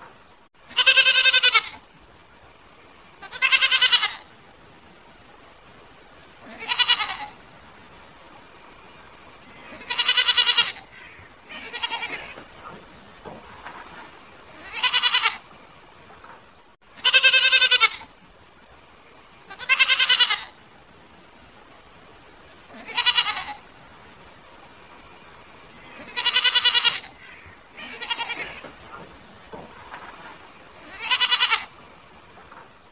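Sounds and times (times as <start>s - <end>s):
goats bleating: 0.7s - 1.8s, 3.2s - 4.3s, 6.4s - 7.4s, 9.6s - 13.4s, 14.5s - 15.5s, 17.0s - 18.1s, 19.5s - 20.6s, 22.7s - 23.7s, 25.8s - 30.2s, 30.8s - 31.8s.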